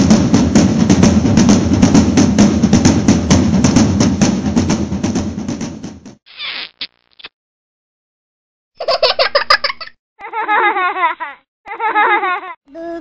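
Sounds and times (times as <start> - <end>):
music with fast drum beat: 0.0 - 6.2.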